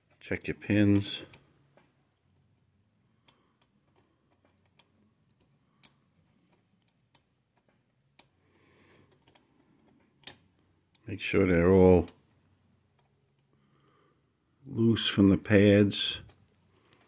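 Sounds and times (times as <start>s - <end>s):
small clicks and taps: 0.0s - 2.6s, 3.2s - 11.1s.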